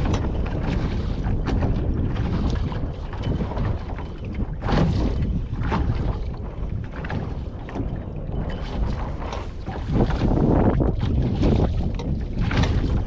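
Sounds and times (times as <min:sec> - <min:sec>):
deep rumble: 0:00.0 - 0:13.0
rushing wind and water: 0:00.0 - 0:13.0
wind buffeting microphone: 0:00.0 - 0:13.0.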